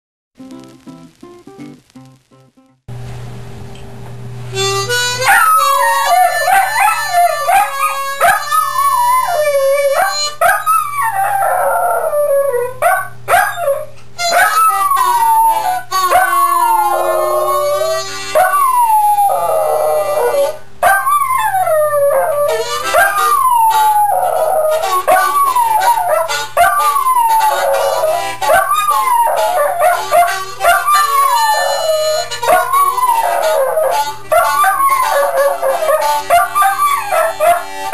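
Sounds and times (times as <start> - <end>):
harmonica playing blues: 4.5 - 11.0, 14.2 - 20.7, 21.8 - 37.9
dog howling: 5.2 - 37.9.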